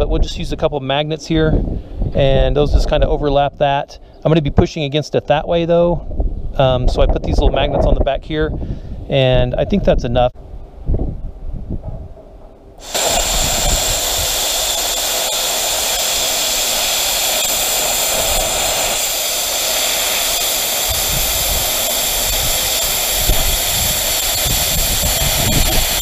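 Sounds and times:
plasma cutter hissing: 12.8 - 26.0.

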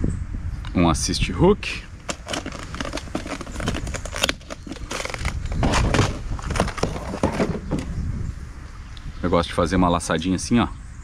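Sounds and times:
hands handling fishing tackle: 2.0 - 7.9.

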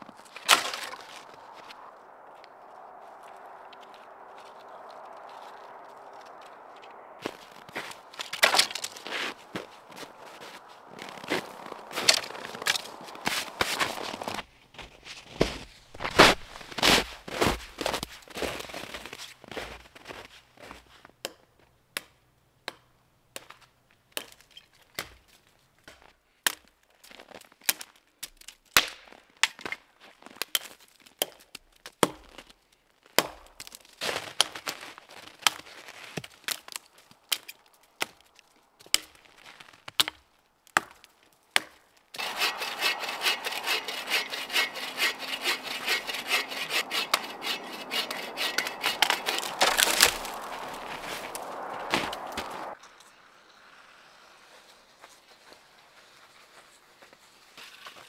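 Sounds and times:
dead branches snapping: 0.0 - 14.4, 15.1 - 19.2, 33.1 - 52.8
hatchet chopping dry wood: 8.1 - 9.6, 30.5 - 32.5, 33.2 - 33.8, 40.0 - 52.7.

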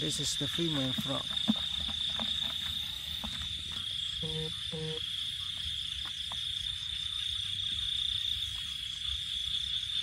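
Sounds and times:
crickets chirring: 0.0 - 10.0
frog croaks: 0.0 - 10.0.

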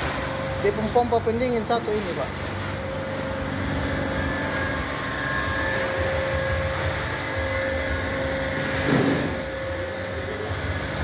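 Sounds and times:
refrigeration machinery humming: 0.0 - 11.0.

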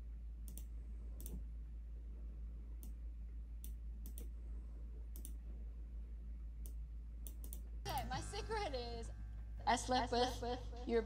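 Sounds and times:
steady low hum: 0.0 - 11.0
computer mouse clicking: 0.4 - 1.4, 3.6 - 4.3, 5.1 - 5.4, 6.6 - 7.7.

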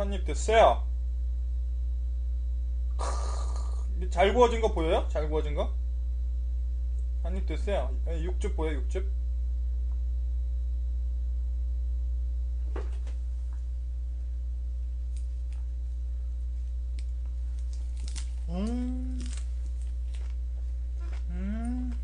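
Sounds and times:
low electrical hum: 0.0 - 22.0
man humming mouth full: 2.9 - 3.9, 18.4 - 19.4, 21.1 - 22.0.

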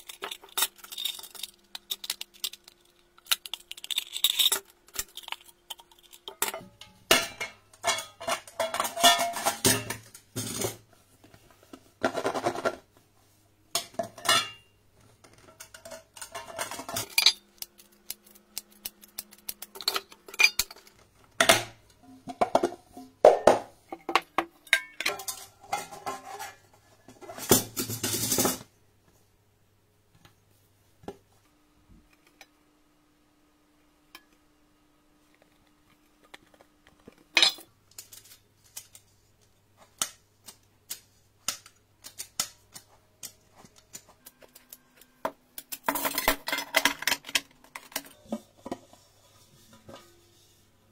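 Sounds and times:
metal cake pans clanking and scraping: 4.2 - 10.8, 13.8 - 14.7, 15.4 - 17.5, 19.7 - 28.7.

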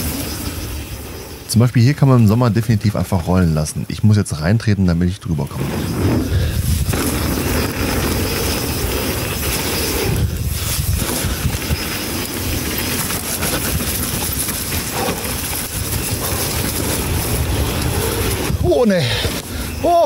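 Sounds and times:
bike tyres rolling: 0.0 - 20.0
wind rush: 5.4 - 20.0.

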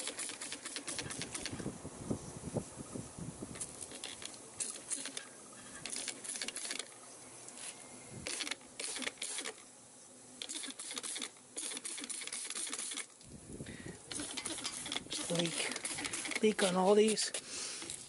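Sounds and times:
spray bottle spritzing: 0.0 - 1.6, 5.8 - 6.9, 7.6 - 9.6, 10.4 - 13.2, 14.1 - 18.0.

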